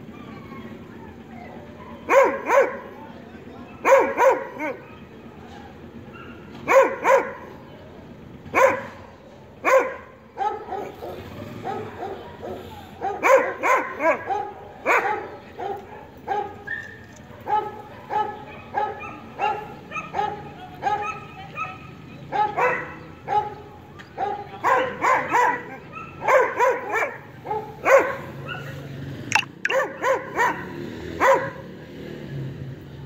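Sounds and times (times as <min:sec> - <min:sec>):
dog barking: 0:01.9 - 0:02.9, 0:03.8 - 0:05.1, 0:06.1 - 0:07.5, 0:08.5 - 0:09.0, 0:09.6 - 0:23.6, 0:24.2 - 0:31.7.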